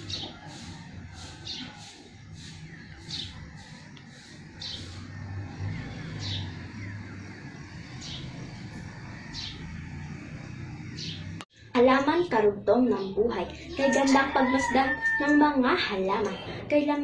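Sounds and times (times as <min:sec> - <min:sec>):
birds chirping: 0:00.0 - 0:11.4
low engine hum: 0:00.0 - 0:11.4.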